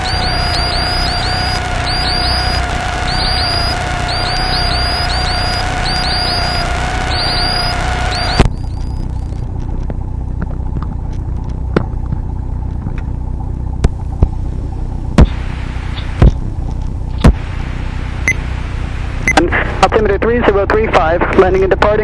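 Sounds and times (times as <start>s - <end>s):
sharp clicks: 0.0s - 13.1s
engine rumble through intercom: 19.3s - 22.0s.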